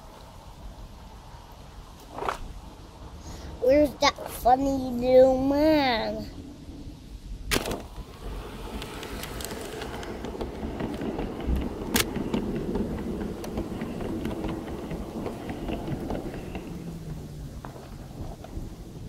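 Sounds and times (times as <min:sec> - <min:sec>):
model train wheels rumbling: 0:07.5 - 0:19.0.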